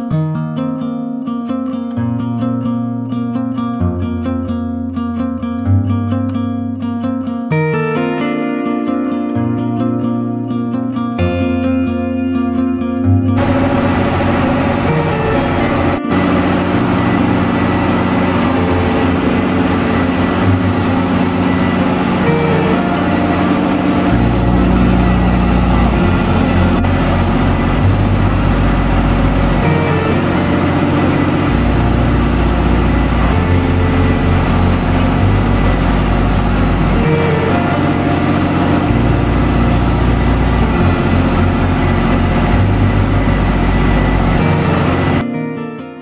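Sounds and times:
machine droning: 13.4 - 45.2
tractor diesel engine running: 13.4 - 45.2.

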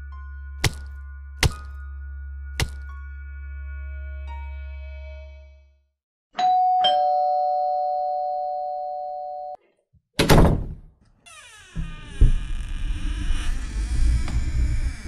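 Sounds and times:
two-note doorbell chime: 6.4 - 9.6.

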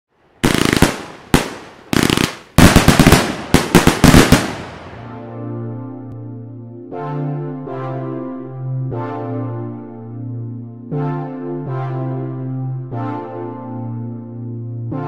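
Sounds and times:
fireworks crackling pops: 0.4 - 5.1
fireworks bangs: 0.4 - 5.2
synthesizer chord: 4.8 - 15.0.

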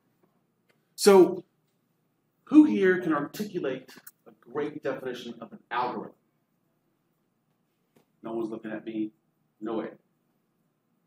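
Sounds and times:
man speaking: 1.0 - 1.5, 2.5 - 6.2, 8.2 - 10.0.

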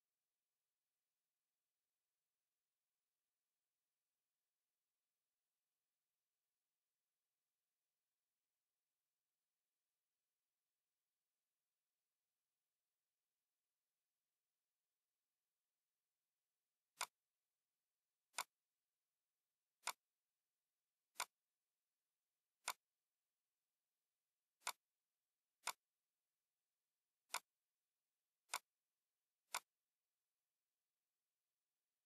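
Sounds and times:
computer mouse clicks: 17.0 - 17.2, 18.3 - 18.6, 19.8 - 20.1, 21.1 - 21.5, 22.6 - 23.0, 24.6 - 24.9, 25.6 - 25.9, 27.3 - 27.6, 28.4 - 28.8, 29.4 - 29.9.

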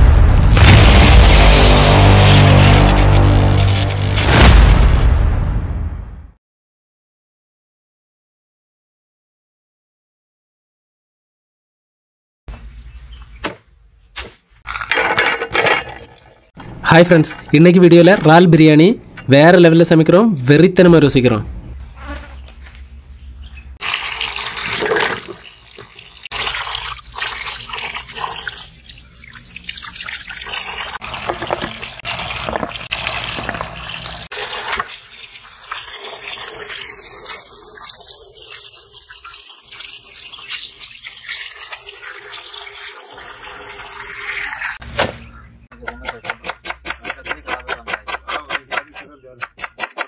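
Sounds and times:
water splashing into steel plate: 23.8 - 44.5.

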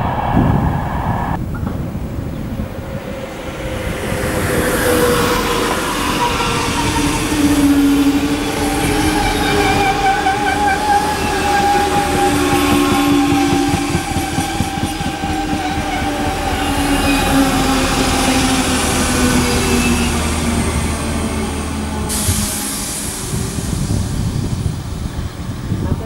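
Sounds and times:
train wheels rumbling on rails: 0.0 - 26.0
train whining tones: 0.0 - 26.0.

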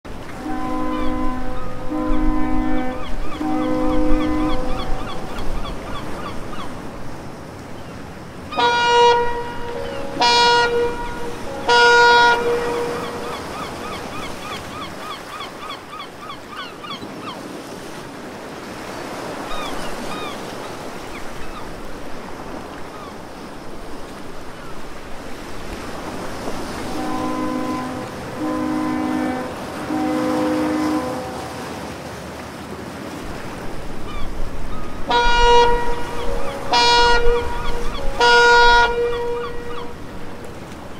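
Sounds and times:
water washing: 0.1 - 15.1, 20.1 - 40.9
gulls calling: 0.1 - 17.8, 19.0 - 31.9, 33.3 - 40.9
horn blasts: 0.2 - 5.6, 8.5 - 14.7, 26.2 - 31.9, 34.9 - 40.8.

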